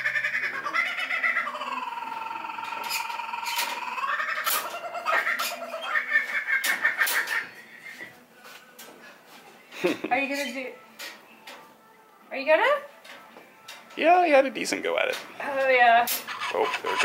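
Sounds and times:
kookaburra laughing call: 0.0s - 7.6s, 16.3s - 17.0s.

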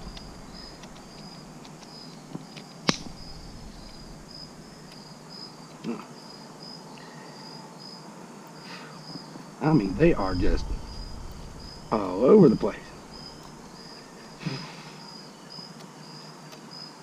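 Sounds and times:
insects chirping: 0.0s - 17.0s
sharp click: 2.6s - 4.2s.

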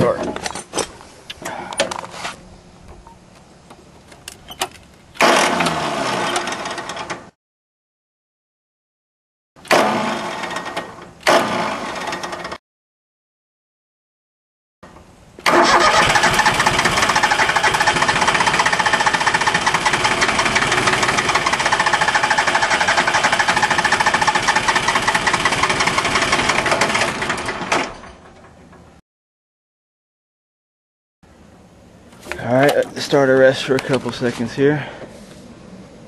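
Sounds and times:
starter motor cranking diesel engine: 5.2s - 7.2s, 15.4s - 28.9s.

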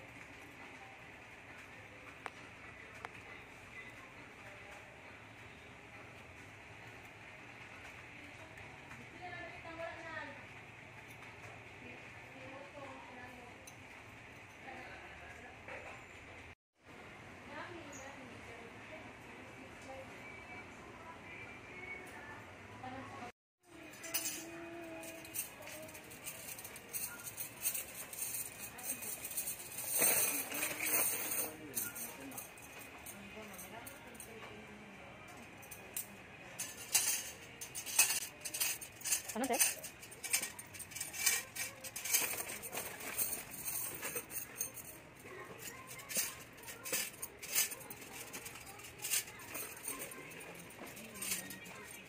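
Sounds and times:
glass sticks clinking: 36.6s - 52.0s.

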